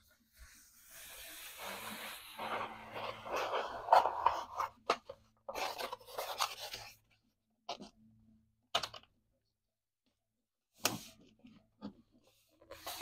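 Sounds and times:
paper scrapes: 0.4s - 4.7s.

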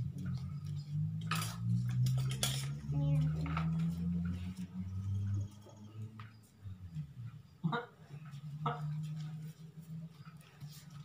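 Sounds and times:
utensils and dishes clattering: 1.2s - 4.1s.

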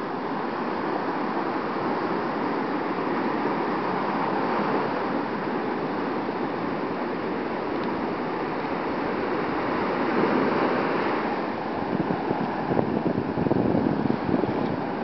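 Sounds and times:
surf breaking on beach: 0.0s - 15.0s.

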